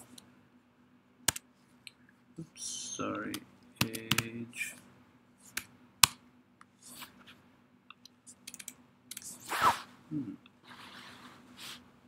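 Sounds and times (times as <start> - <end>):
keyboard typing: 3.8 - 4.3, 8.3 - 9.3.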